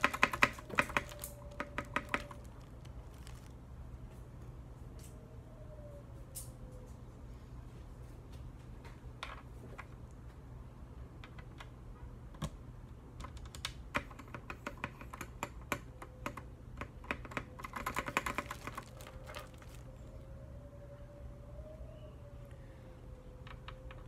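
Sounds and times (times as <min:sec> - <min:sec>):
mechanical keyboard keys clacking: 0:00.0 - 0:02.8, 0:13.2 - 0:19.6.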